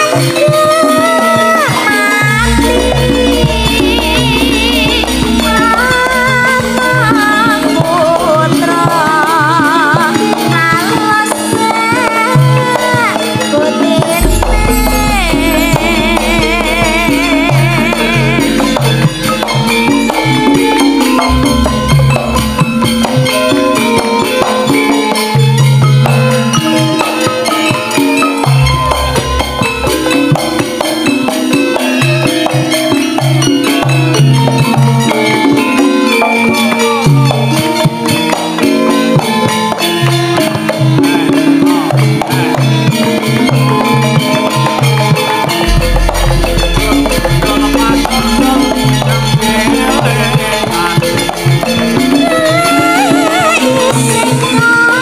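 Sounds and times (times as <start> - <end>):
woman singing into a microphone: 0.0 - 22.6, 41.0 - 55.0
gamelan band playing: 0.0 - 55.0.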